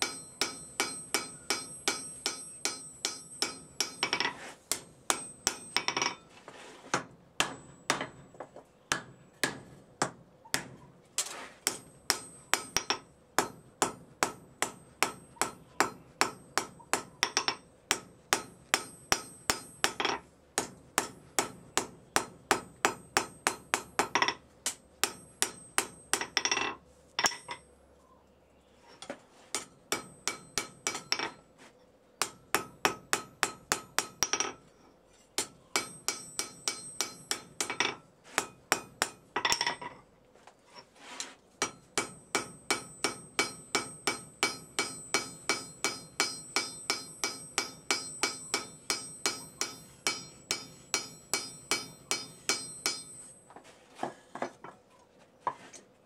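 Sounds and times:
hammer blows on anvil: 0:41.6 - 0:53.6.

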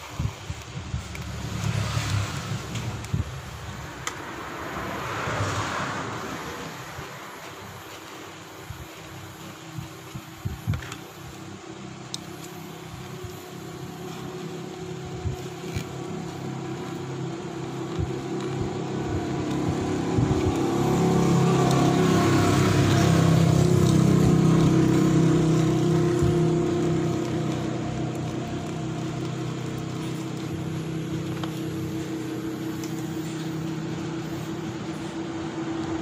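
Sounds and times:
small motor buzzing hum: 0:07.0 - 0:35.2.

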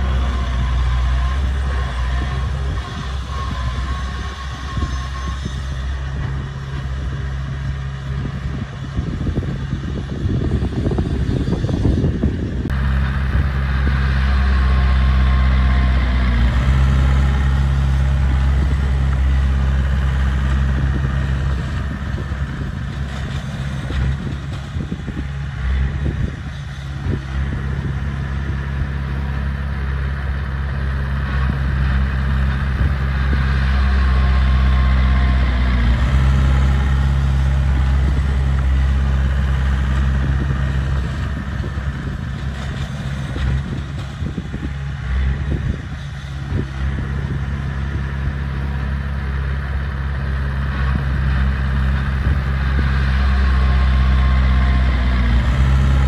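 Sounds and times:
diesel engine running: 0:00.0 - 0:56.0.

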